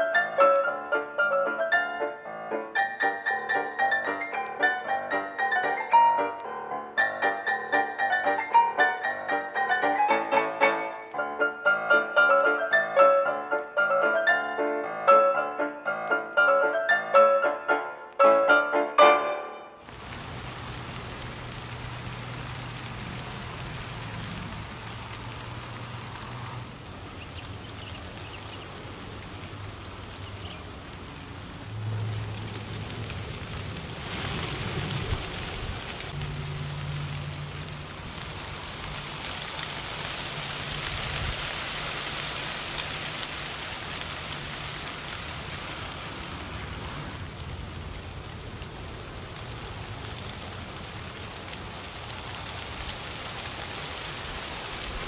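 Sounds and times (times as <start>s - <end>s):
dry leaves rustling: 19.8s - 55.0s.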